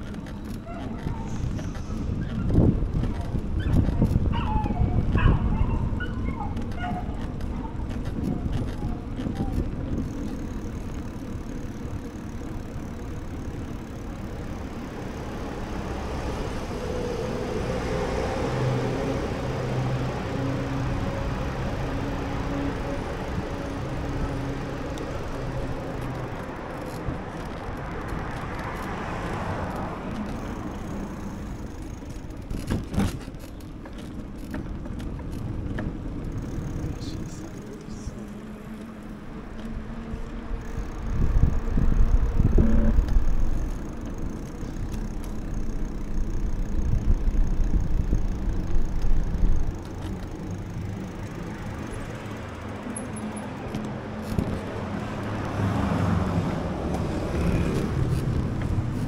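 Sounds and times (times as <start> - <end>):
wind rumble on microphone: 0.0 - 12.1, 15.4 - 51.0, 53.8 - 59.0
cars passing: 0.0 - 59.0
city street ambience: 0.0 - 59.0.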